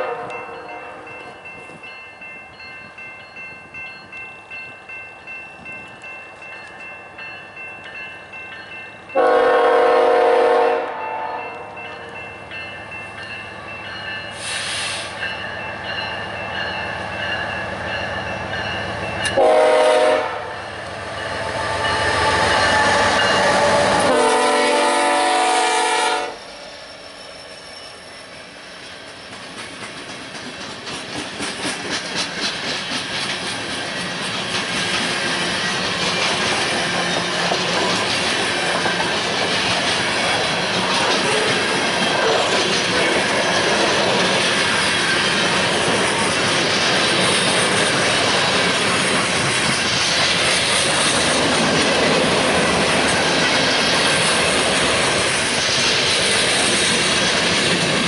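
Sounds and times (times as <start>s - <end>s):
locomotive air horn blasts: 0.0s - 1.0s, 9.2s - 11.7s, 19.3s - 20.6s, 23.5s - 26.4s
passing freight train: 0.0s - 58.0s
train wheels clacking: 26.4s - 58.0s.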